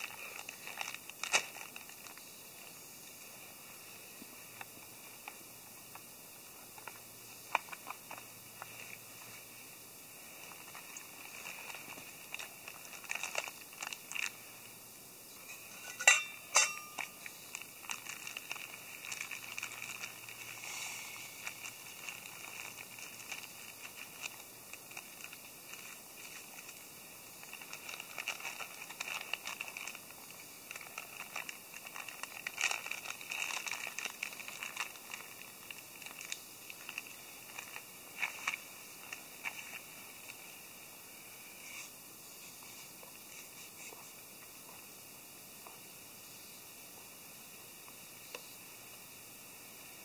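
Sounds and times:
packet crinkling: 0.0 - 2.3, 10.4 - 14.4, 16.6 - 40.4
wood fire crackling: 4.2 - 40.6.

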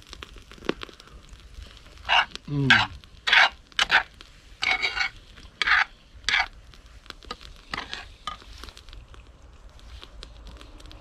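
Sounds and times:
cutlery scraping on a dish: 2.1 - 6.5.

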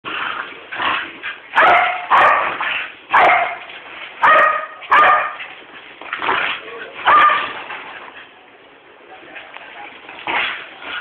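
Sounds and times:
dogs barking: 1.5 - 5.5, 6.9 - 7.6
dogs yipping: 1.5 - 5.5, 7.0 - 7.6.

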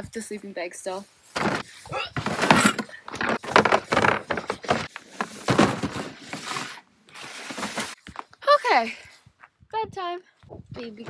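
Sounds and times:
plastic tote clunks and scraping: 1.3 - 8.3.

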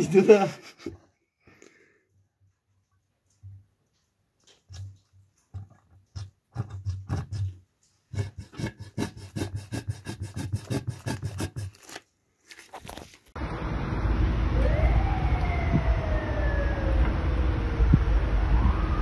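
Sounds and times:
oil glugging from bottle: 4.5 - 7.6
car engine rumbling: 13.4 - 18.9
rising and falling whine: 13.4 - 19.0.

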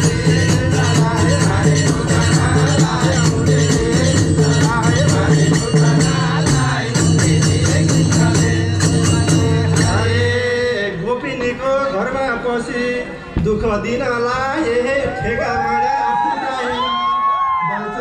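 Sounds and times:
fast repeating percussion: 0.0 - 10.7
singing: 0.0 - 18.0.

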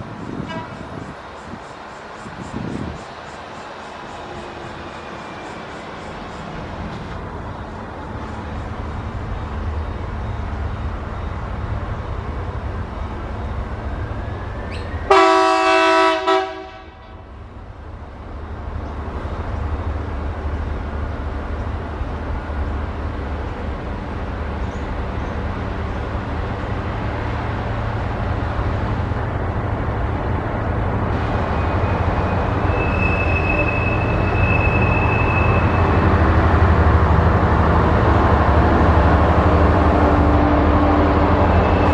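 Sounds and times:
diesel locomotive engine drone: 0.0 - 41.9
train horn blast: 0.4 - 1.0, 15.1 - 17.3.

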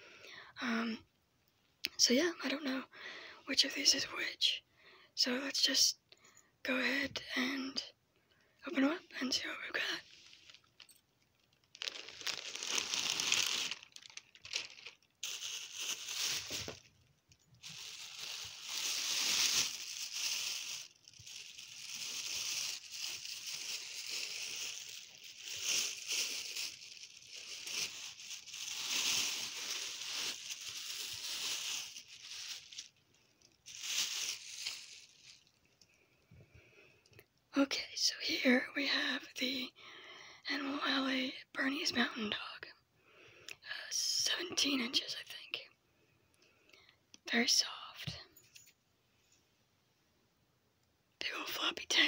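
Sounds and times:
plastic bags crinkling: 9.8 - 35.8.

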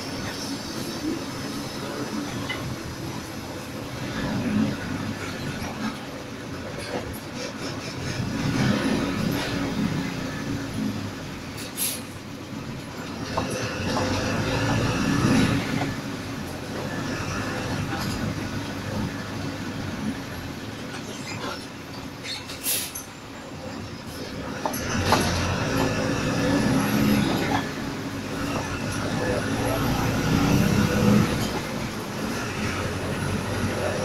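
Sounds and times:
bus engine running: 0.0 - 34.0
road rumble: 0.0 - 34.0
brief air hisses: 11.6 - 12.2, 22.6 - 23.1.

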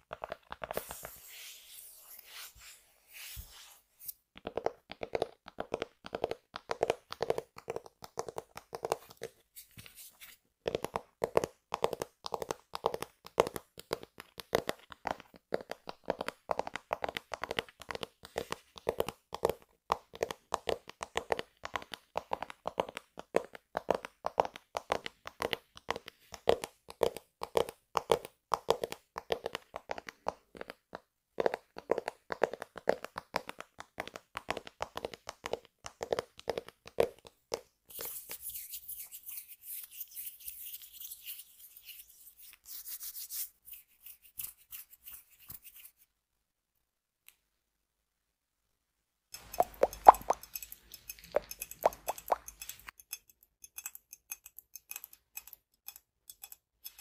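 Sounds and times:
fingertips tapping on tablet: 0.0 - 1.2, 4.3 - 10.0, 10.6 - 40.8, 49.4 - 57.0.

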